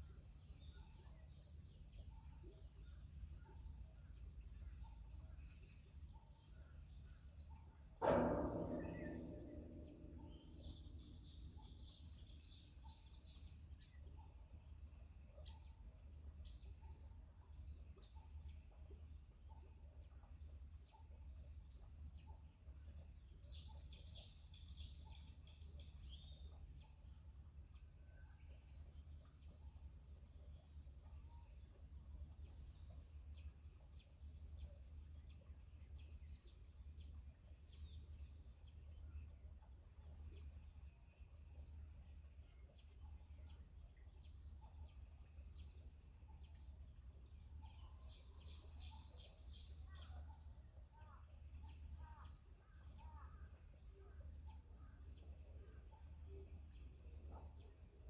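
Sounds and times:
small birds chirping: 42.4 - 58.0.

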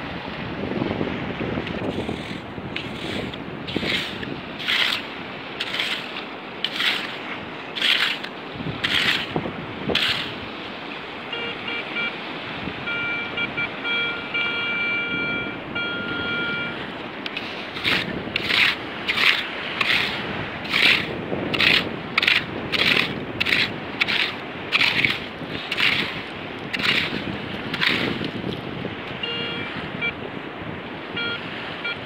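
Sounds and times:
scoop digging wet sand: 1.8 - 10.4, 17.2 - 28.4
metal detector tone: 11.3 - 12.1, 12.8 - 26.1, 29.2 - 30.2, 31.2 - 32.0.

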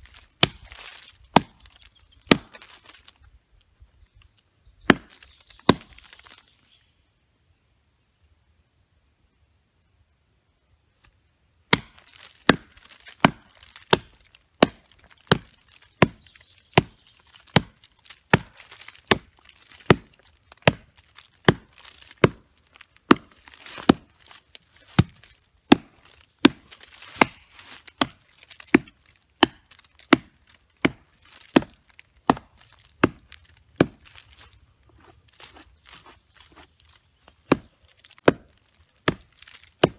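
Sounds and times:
knife chopping into a log: 0.4 - 1.7, 11.7 - 16.2, 16.8 - 19.3, 24.9 - 33.2, 37.5 - 39.9.

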